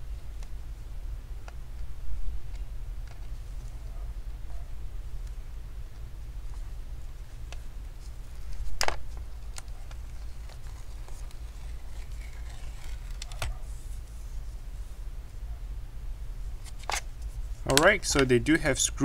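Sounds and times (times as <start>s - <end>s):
steady low hum: 0.0s - 19.0s
adhesive strip peeling: 9.5s - 13.7s
faint scratchy rasp: 9.6s - 15.0s.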